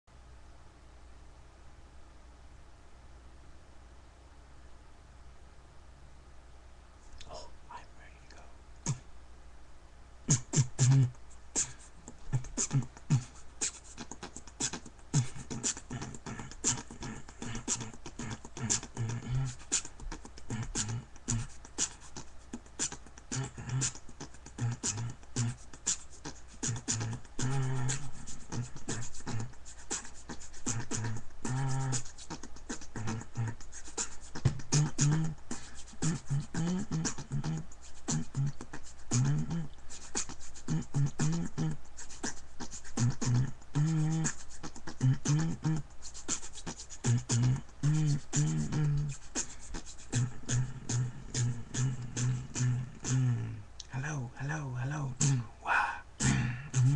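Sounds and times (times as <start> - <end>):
person beatboxing: 7.2 - 9.1, 10.3 - 56.9
hummed low bass notes: 56.2 - 56.9.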